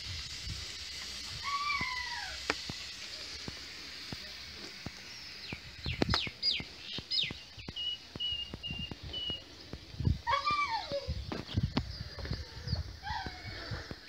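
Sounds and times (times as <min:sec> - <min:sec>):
wood fire crackling and popping: 0:00.0 - 0:10.3
birds chirping: 0:03.0 - 0:14.0.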